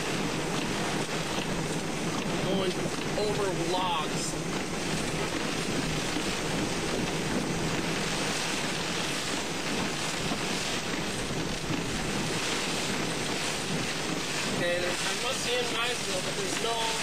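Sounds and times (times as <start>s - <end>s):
heavy rain on car: 0.0s - 17.0s
strong wind hitting car: 0.0s - 17.0s.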